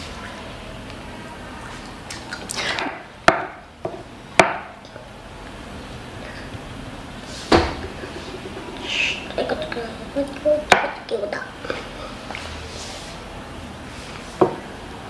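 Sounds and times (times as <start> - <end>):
dull thump: 7.5 - 8.0.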